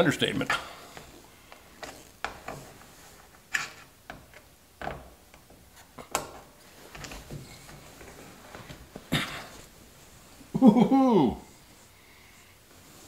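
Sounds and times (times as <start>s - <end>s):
cloth rustling: 5.6s - 10.5s, 11.5s - 13.0s.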